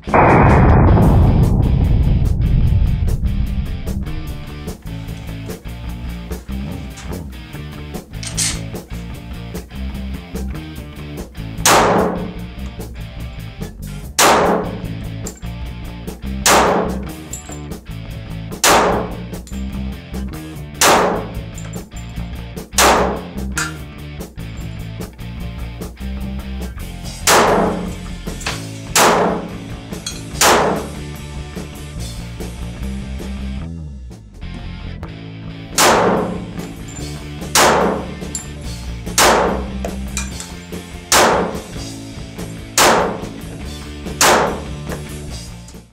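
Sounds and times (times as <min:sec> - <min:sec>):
music with steady beat: 0:00.0 - 0:17.3
background music: 0:00.0 - 0:45.9
pistol shots echoing: 0:11.6 - 0:12.4, 0:14.2 - 0:14.9, 0:16.5 - 0:17.2, 0:18.6 - 0:19.2, 0:20.8 - 0:21.5, 0:22.8 - 0:23.8, 0:27.3 - 0:27.9, 0:29.0 - 0:29.6, 0:30.4 - 0:31.0, 0:35.8 - 0:36.6, 0:37.6 - 0:38.2, 0:39.2 - 0:39.8, 0:41.1 - 0:41.7, 0:42.8 - 0:43.3, 0:44.2 - 0:44.8.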